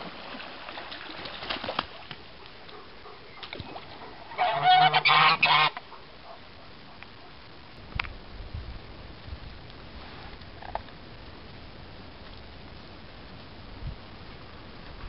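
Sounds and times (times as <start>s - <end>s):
geese honking: 4.3s - 6.0s.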